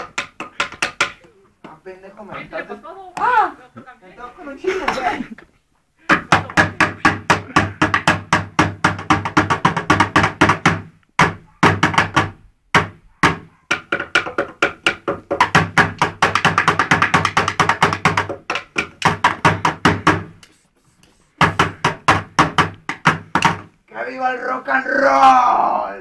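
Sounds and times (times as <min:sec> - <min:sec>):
drumsticks beating plastic bucket: 0:00.0 - 0:01.8, 0:06.1 - 0:20.5, 0:21.4 - 0:23.8.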